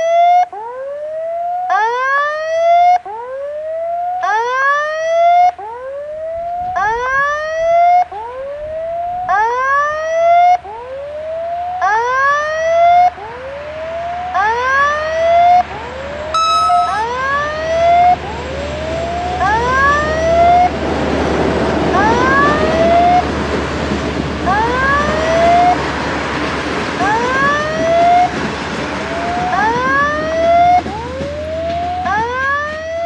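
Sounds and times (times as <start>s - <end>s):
level crossing warning whoops: 11.2s - 13.1s, 14.3s - 15.6s, 16.4s - 18.4s, 29.2s - 33.0s
train rumble: 16.8s - 33.0s.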